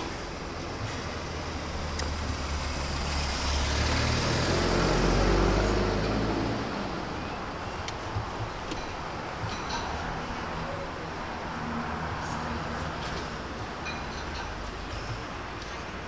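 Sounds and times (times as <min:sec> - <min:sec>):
street traffic noise: 0:00.0 - 0:16.0
vehicle driving past: 0:01.0 - 0:07.4.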